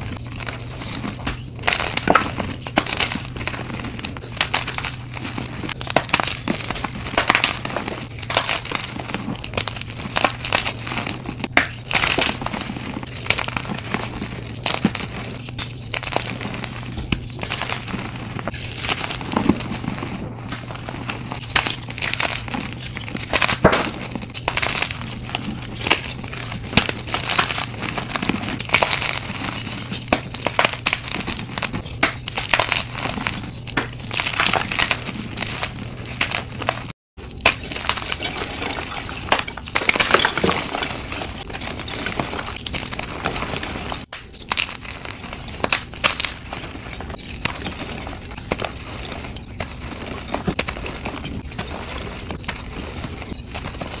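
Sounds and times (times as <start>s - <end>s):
chalk crushed by hand: 14.6s - 54.0s.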